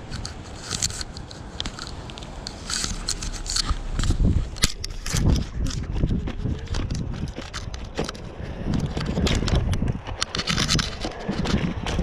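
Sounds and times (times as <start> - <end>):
short scraping clicks: 0.0 - 8.2
scooter rumble on concrete: 0.0 - 12.0
wind buffeting microphone: 0.0 - 12.0.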